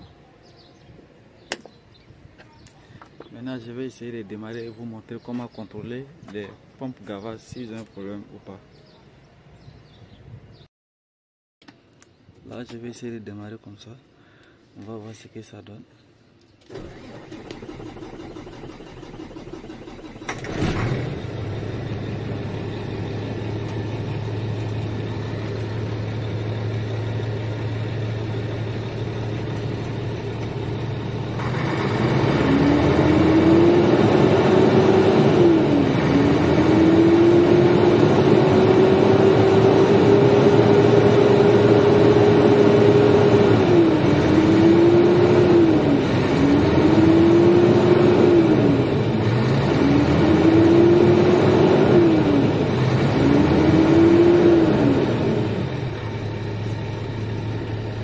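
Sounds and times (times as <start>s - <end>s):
diesel truck engine idling and revving: 16.7s - 58.0s.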